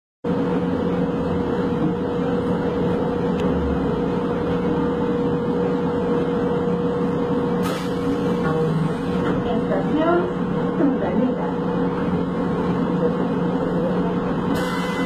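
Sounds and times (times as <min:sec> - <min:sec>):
constant mid-pitched hum: 0:00.3 - 0:15.0
metro train rumbling: 0:00.3 - 0:15.0.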